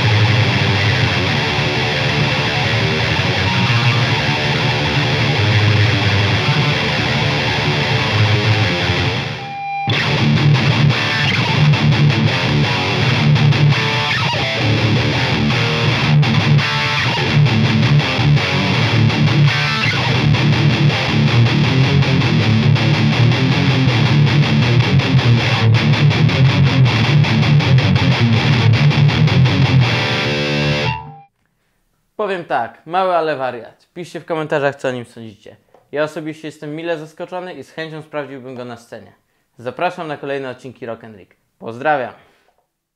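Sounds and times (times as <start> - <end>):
distorted electric guitar riffs: 0.0 - 31.3.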